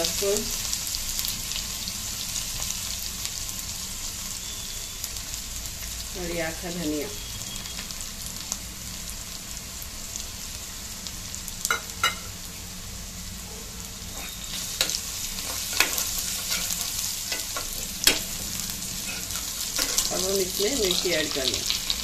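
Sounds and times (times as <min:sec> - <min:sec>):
spices sizzling in hot oil: 0:00.0 - 0:22.0
steel spoon stirring: 0:14.1 - 0:20.2.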